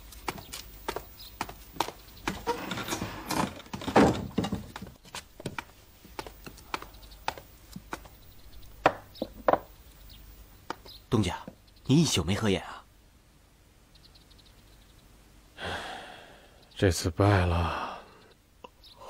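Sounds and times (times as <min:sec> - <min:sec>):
sharp wooden knocks and taps: 0:03.6 - 0:08.2, 0:08.8 - 0:09.7, 0:10.6 - 0:11.6.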